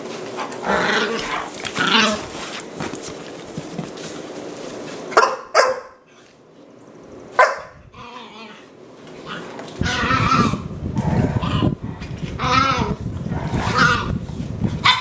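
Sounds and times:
dogs growling and scuffling: 0:00.0 - 0:05.2, 0:06.0 - 0:15.0
dog barking: 0:05.1 - 0:06.0, 0:07.4 - 0:07.8.

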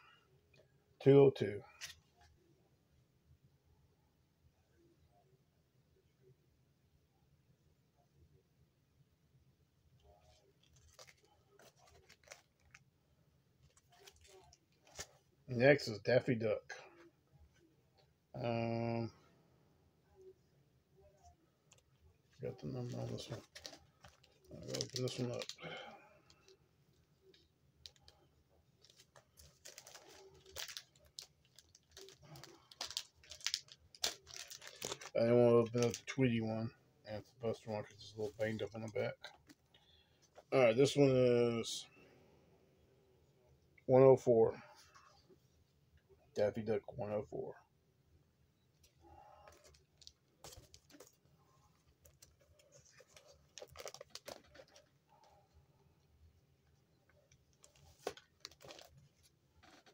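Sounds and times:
plastic bag rustling and crinkling: 0:10.6 - 0:12.8, 0:22.5 - 0:25.8, 0:28.8 - 0:36.2, 0:51.9 - 0:55.4, 0:57.5 - 0:59.9.

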